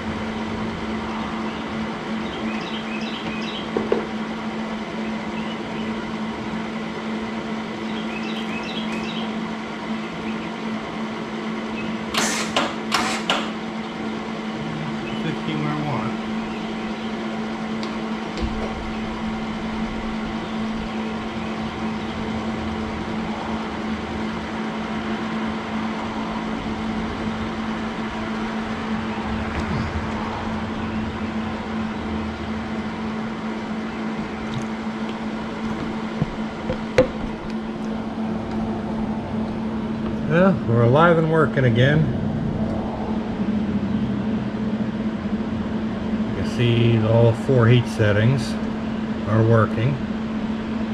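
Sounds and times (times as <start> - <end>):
cooling fan running: 0.0 - 50.9
welder electrical hum: 0.0 - 50.9.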